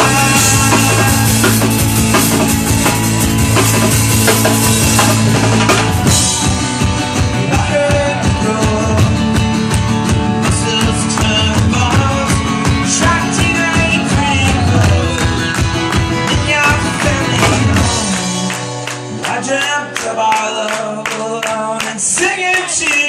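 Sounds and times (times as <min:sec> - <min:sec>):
voices singing: 0:00.0 - 0:03.1
drum kit hitting: 0:00.0 - 0:18.6
rock band playing: 0:00.0 - 0:23.0.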